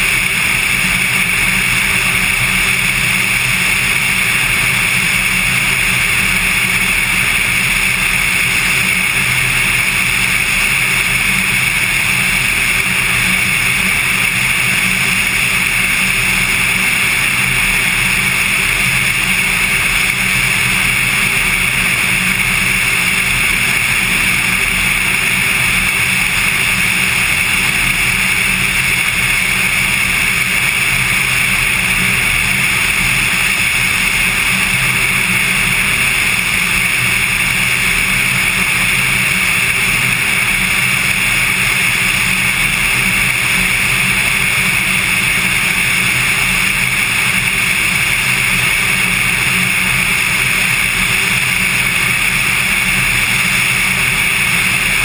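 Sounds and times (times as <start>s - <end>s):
airplane engine and propeller drone: 0.0s - 55.0s.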